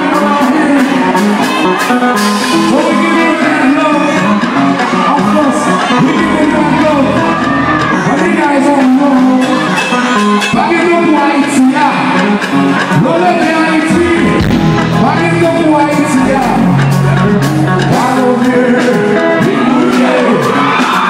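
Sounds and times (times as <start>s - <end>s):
electric guitar: 0.0s - 21.0s
live band playing: 0.0s - 21.0s
lead singer: 13.0s - 21.0s.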